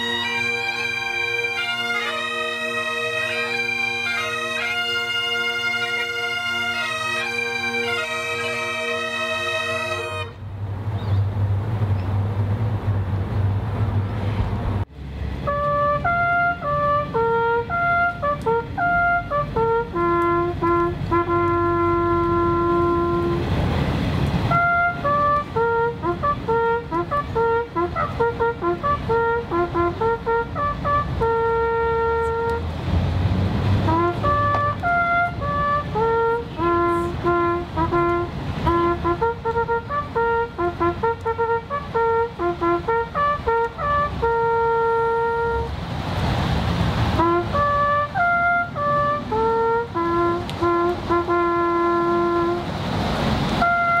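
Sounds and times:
bagpipes playing slow tune: 0:00.0 - 0:10.4.

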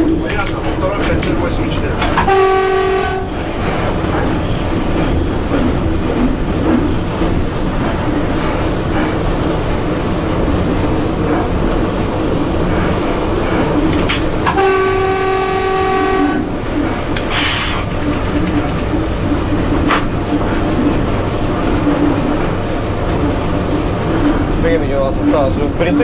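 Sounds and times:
electric locomotive running rumble: 0:00.0 - 0:26.0
train horn: 0:02.2 - 0:03.6, 0:14.5 - 0:16.6.

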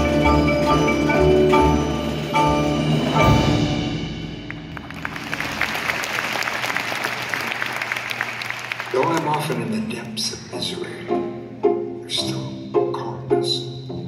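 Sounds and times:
mallet keyboard chords: 0:00.0 - 0:04.8, 0:10.5 - 0:14.0.

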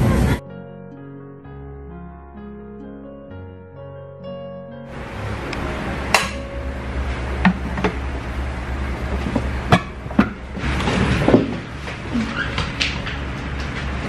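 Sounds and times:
steady low hum: 0:04.9 - 0:14.0.

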